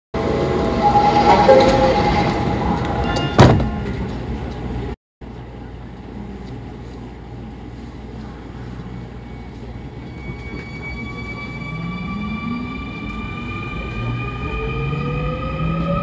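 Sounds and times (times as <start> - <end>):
train running gear rumble: 0.4 - 11.7.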